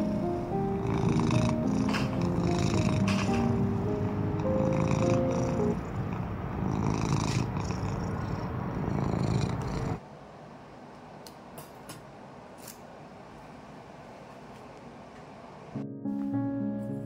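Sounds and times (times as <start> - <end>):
cat purring: 0.0 - 10.0.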